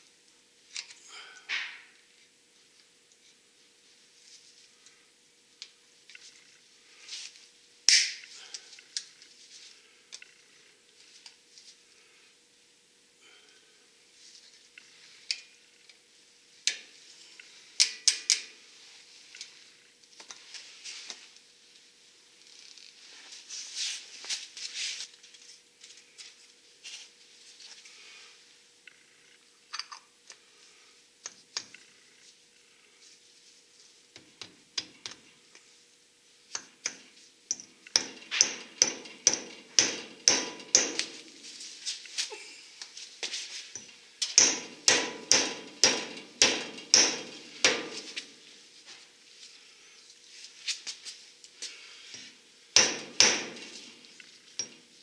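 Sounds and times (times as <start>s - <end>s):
faint steady hum: 0.0s - 55.0s
hand tools clicking and tapping: 17.8s - 18.5s, 34.1s - 35.2s, 36.5s - 41.3s, 43.7s - 48.3s, 52.2s - 54.0s, 54.6s - 54.8s
hammer striking metal: 36.9s - 41.2s, 44.4s - 48.1s, 52.8s - 53.8s.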